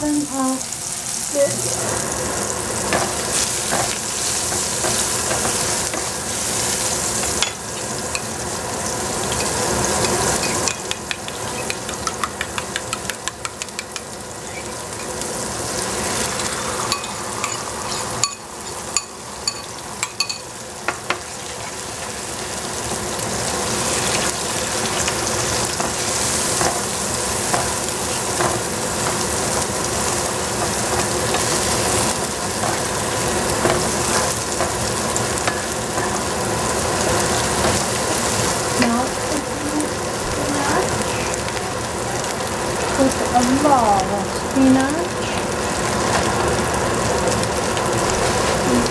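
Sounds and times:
mushrooms sizzling in oil: 0:00.0 - 0:48.9
wooden spatula tapping pan: 0:10.0 - 0:14.2
sharp knocks on pan: 0:10.7 - 0:14.1.

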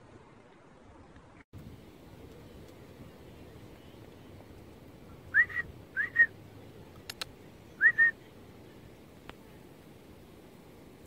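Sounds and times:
two-note whistles: 0:05.3 - 0:06.3, 0:07.8 - 0:08.2
sharp clicks: 0:06.9 - 0:07.4.

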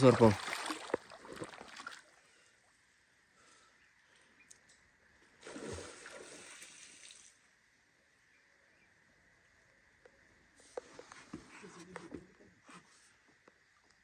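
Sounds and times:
river water splashing: 0:00.0 - 0:02.3, 0:05.4 - 0:07.4.

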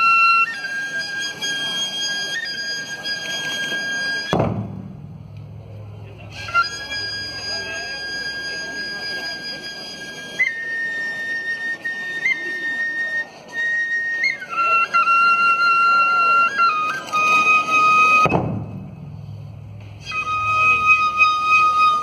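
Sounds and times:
bamboo flute long notes: 0:00.0 - 0:22.0
large drum stroke: 0:04.3 - 0:06.1, 0:18.2 - 0:20.0.

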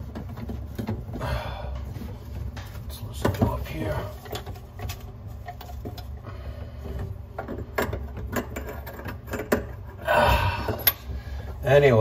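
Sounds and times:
metal drain parts clicking and scraping: 0:00.0 - 0:01.2, 0:01.8 - 0:10.0.

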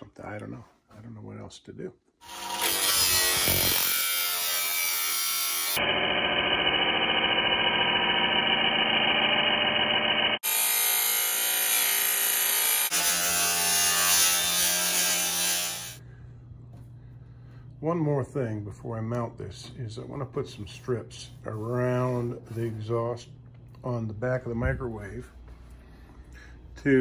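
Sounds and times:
angle grinder grinding steel: 0:02.2 - 0:16.0.

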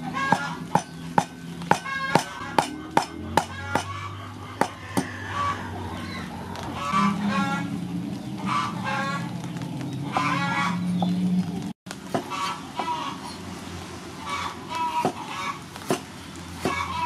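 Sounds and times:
poultry calling: 0:00.0 - 0:11.6, 0:12.3 - 0:13.4, 0:14.2 - 0:15.7, 0:16.6 - 0:17.0
cleaver chopping on wooden block: 0:00.3 - 0:04.0, 0:04.6 - 0:05.2, 0:15.8 - 0:16.8.

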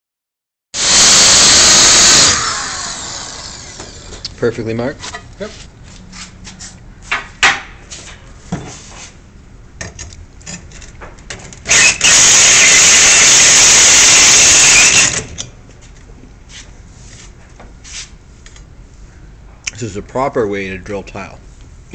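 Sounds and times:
drill hole saw grinding tile: 0:00.8 - 0:04.1, 0:11.7 - 0:15.4.

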